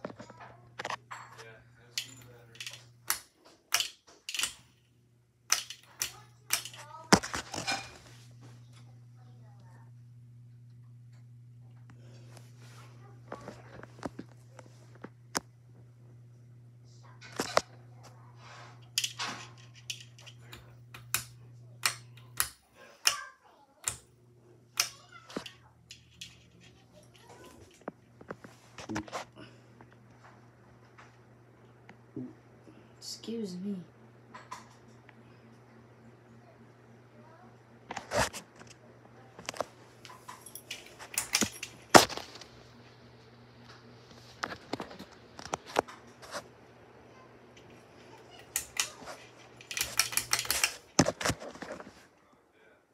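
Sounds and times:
fan motor humming: 0.0 - 52.2
pull-chain switch clicking: 49.6 - 50.8.

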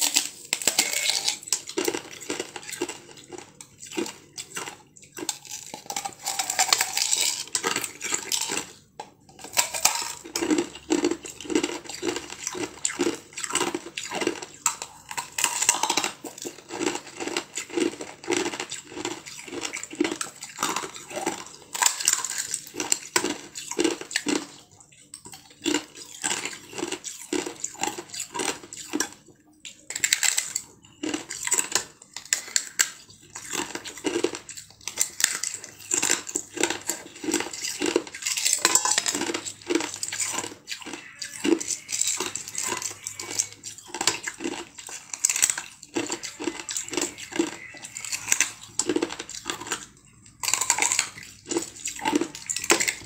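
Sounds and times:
ice being chewed: 0.0 - 53.0.

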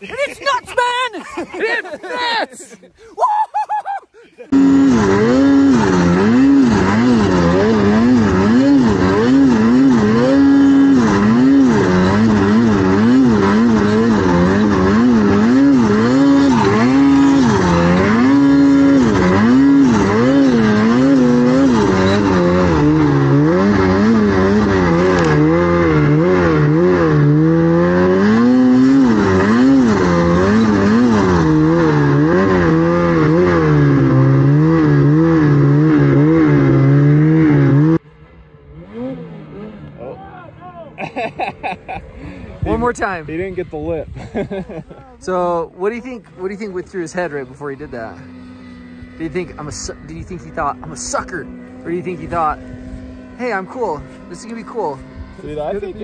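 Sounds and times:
snowmobile engine revving: 4.4 - 56.0.

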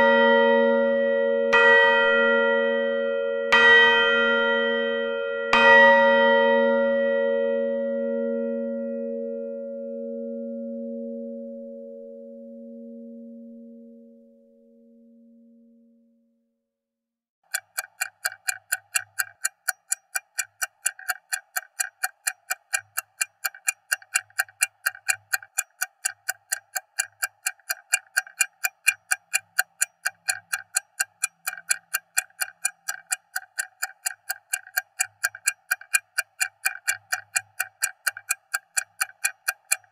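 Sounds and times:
stopwatch ticking: 17.4 - 39.9.

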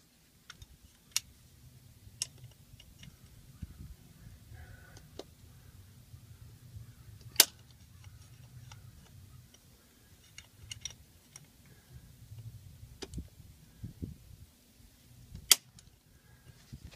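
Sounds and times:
wind rumble on microphone: 1.6 - 9.4, 10.6 - 14.5, 16.3 - 16.9.

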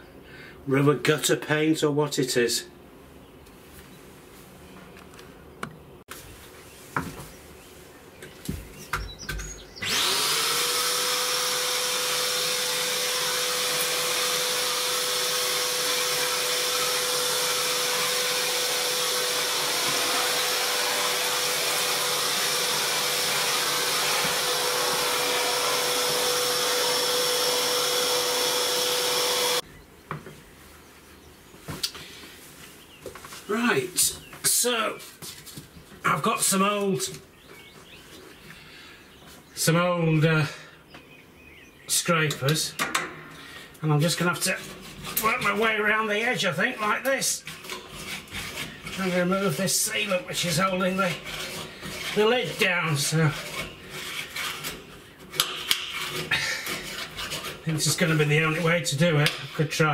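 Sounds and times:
vacuum cleaner whine: 9.8 - 29.6.

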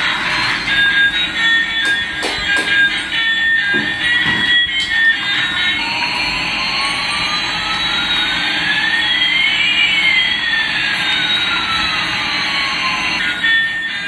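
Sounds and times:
rising and falling whistling tones: 6.9 - 14.0.

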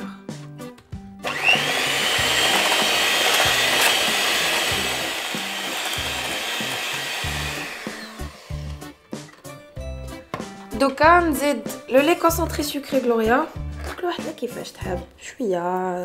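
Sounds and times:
electric hand mixer whirring: 1.2 - 8.9.

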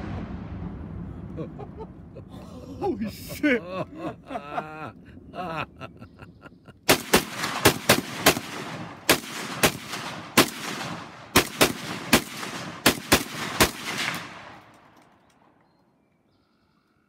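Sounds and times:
rifle gunshots with echo: 6.9 - 15.0.

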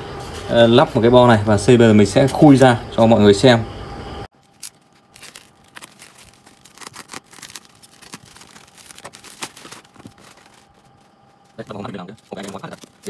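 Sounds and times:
plastic wrapping crinkling and tearing: 4.4 - 13.0
box cutter slitting packing tape: 4.6 - 10.4.

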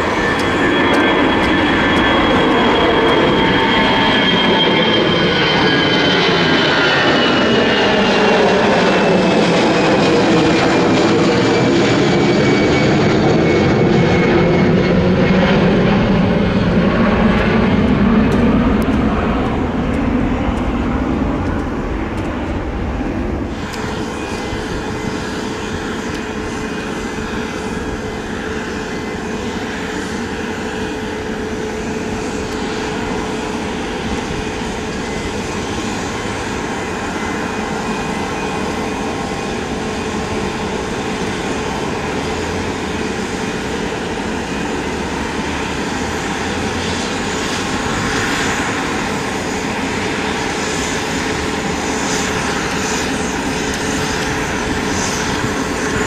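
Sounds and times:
jet engines passing overhead: 0.0 - 56.0.

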